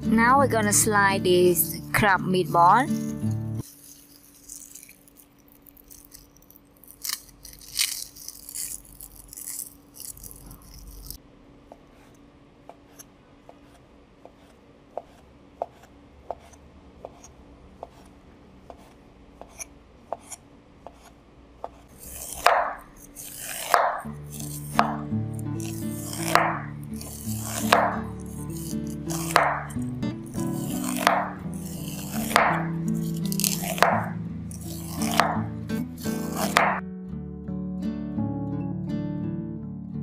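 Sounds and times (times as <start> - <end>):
knife scraping corn cob: 1.6 - 11.2, 11.8 - 36.8
rustling handling: 2.5 - 11.2.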